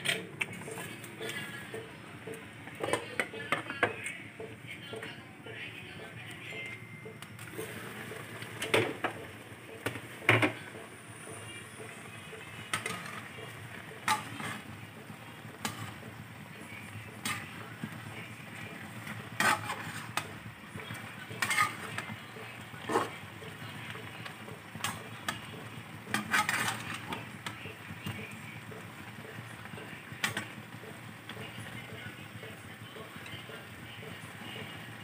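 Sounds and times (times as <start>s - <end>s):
liquid bubbling in a pan: 7.4s - 35.0s
spatula scraping a pan: 11.3s - 28.2s.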